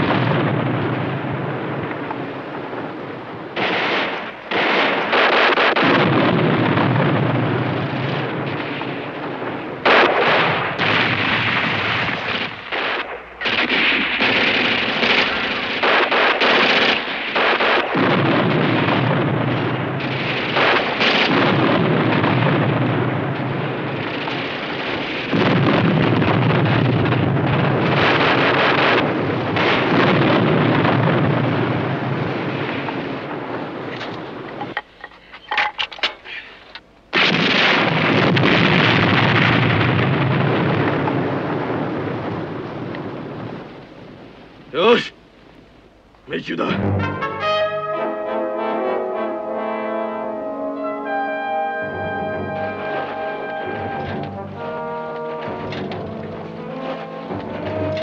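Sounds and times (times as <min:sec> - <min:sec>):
explosions: 0:00.0 - 0:34.8, 0:37.1 - 0:45.0, 0:46.4 - 0:48.3, 0:51.8 - 0:58.0
machine-gun fire: 0:03.6 - 0:34.5, 0:37.1 - 0:43.7.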